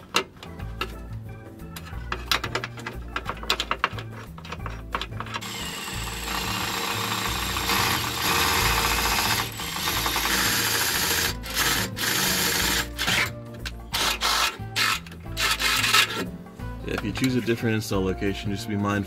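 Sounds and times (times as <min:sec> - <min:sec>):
power drill drilling into metal: 0:05.4 - 0:13.3, 0:14.0 - 0:16.2.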